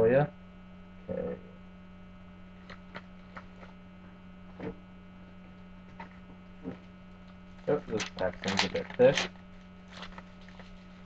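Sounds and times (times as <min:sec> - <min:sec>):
electrical mains hum: 0:00.0 - 0:11.0
faint clicks of card packs: 0:06.0 - 0:10.8.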